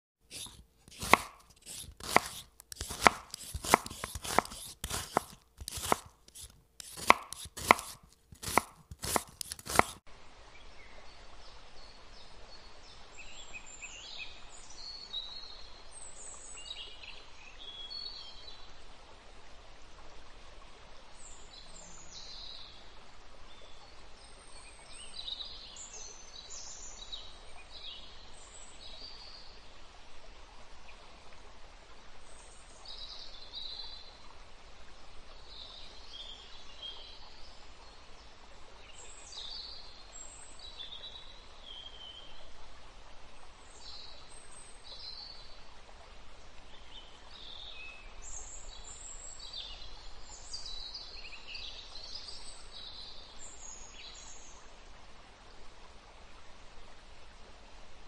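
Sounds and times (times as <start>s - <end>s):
knife chopping on wooden board: 0.3s - 10.0s
faint steady hiss: 0.3s - 58.0s.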